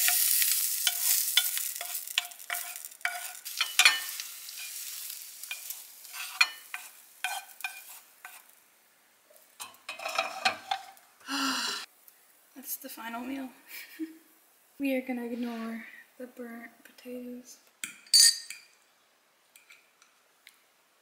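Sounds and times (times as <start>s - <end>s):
wooden spoon scraping a pan: 0.0s - 8.6s, 9.6s - 11.0s
food sizzling in a frying pan: 0.0s - 12.5s.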